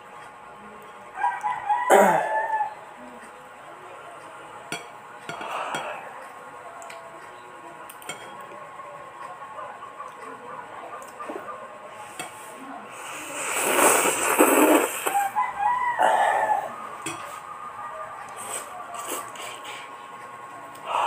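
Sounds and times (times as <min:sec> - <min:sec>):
rooster crowing: 0:01.2 - 0:02.8, 0:15.0 - 0:17.1
slurping and chewing noodles: 0:13.0 - 0:15.3, 0:18.3 - 0:19.9.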